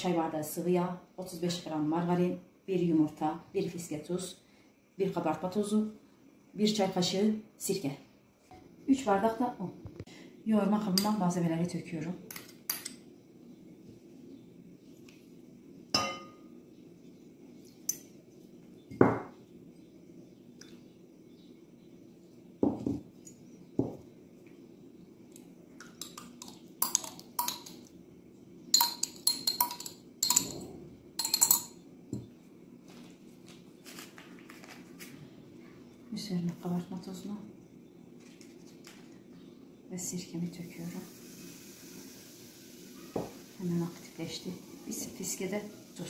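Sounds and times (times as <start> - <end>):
faint low hum: 0.0 - 46.0
glass dishes clinking: 16.0 - 16.5, 28.8 - 31.8.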